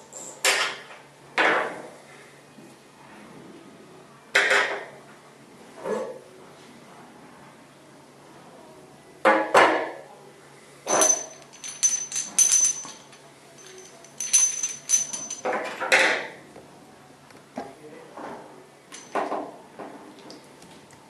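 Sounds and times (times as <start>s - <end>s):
metal objects clanking and clinking: 10.9s - 15.8s, 18.9s - 19.3s.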